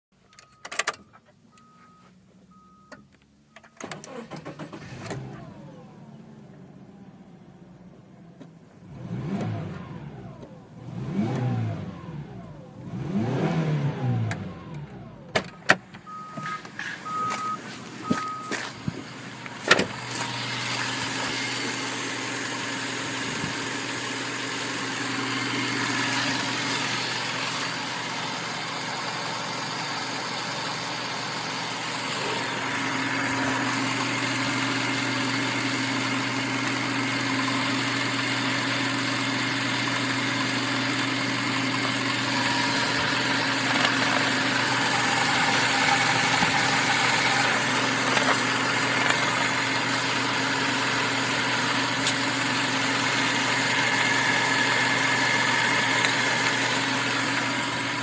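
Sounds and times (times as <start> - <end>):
car engine starting and revving: 3.8 - 58.0
short even beeps: 16.1 - 18.7.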